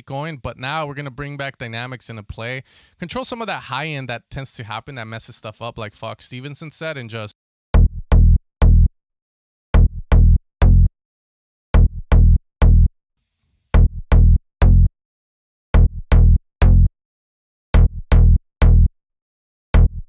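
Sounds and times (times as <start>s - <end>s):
punchy bass synth notes: 7.8s - 8.9s, 9.8s - 10.9s, 11.8s - 12.9s, 13.8s - 14.9s, 15.8s - 16.9s, 17.8s - 18.9s, 19.8s - 20.0s.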